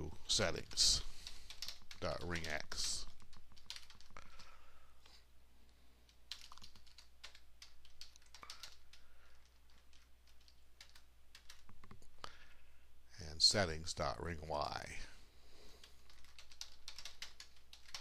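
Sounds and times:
keyboard typing: 0.4 - 4.6, 6.1 - 12.1, 15.8 - 18.0.

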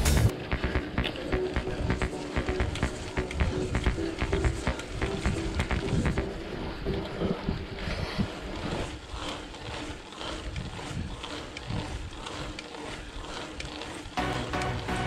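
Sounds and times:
background music with steady beat: 0.0 - 9.0, 14.2 - 15.0
uneven microphone rumble: 0.0 - 9.0
bike tyres on gravel: 0.0 - 15.0.

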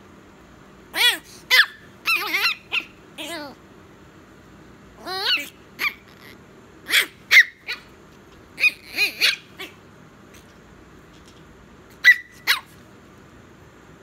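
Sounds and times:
puppy yapping: 0.9 - 3.6, 5.0 - 7.9, 8.6 - 9.8, 11.9 - 12.8.

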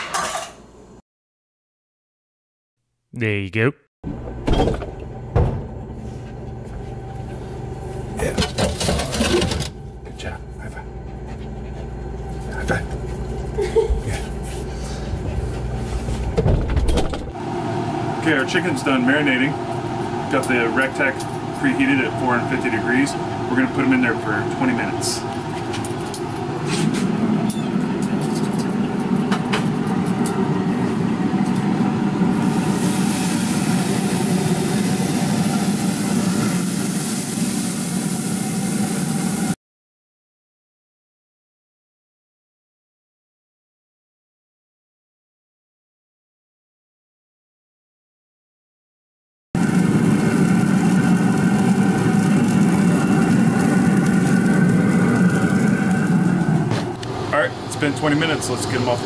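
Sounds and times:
loud machine hum: 17.4 - 39.6, 49.6 - 59.0
chicken sizzling on grill: 32.3 - 39.5, 49.6 - 56.7.

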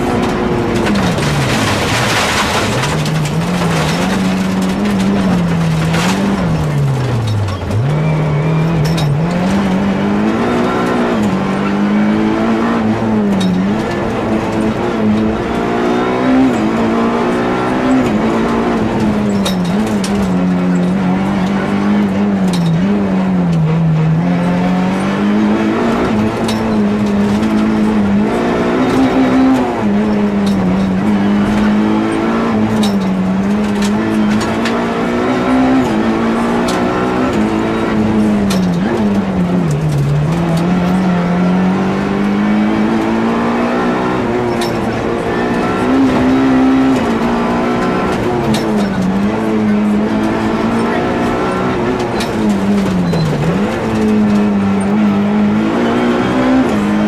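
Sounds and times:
gravel hitting car underside: 0.0 - 9.6
rally car engine revving: 0.0 - 57.0.

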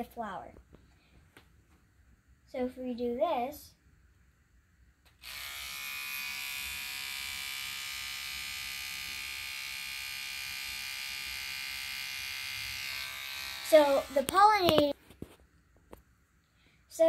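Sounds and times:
electric toothbrush buzzing: 5.2 - 14.9.

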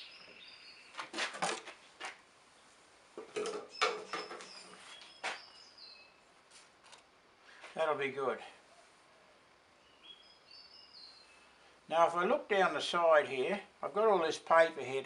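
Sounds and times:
birds chirping: 0.0 - 1.1, 3.4 - 6.3, 8.7 - 12.3.

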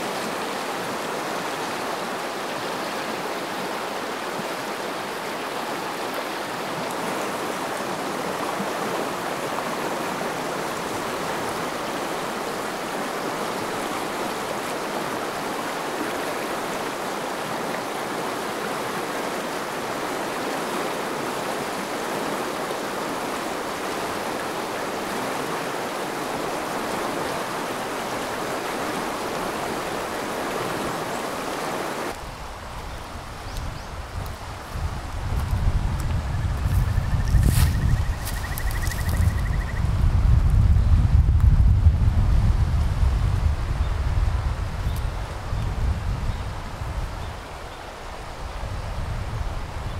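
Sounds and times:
river rushing over rocks: 0.0 - 36.3
wind rumble on microphone: 32.1 - 49.9.

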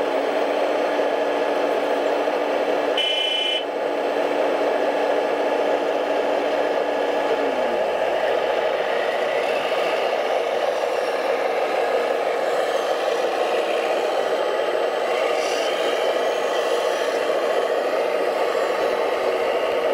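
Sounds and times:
model trucks running: 0.0 - 19.9.

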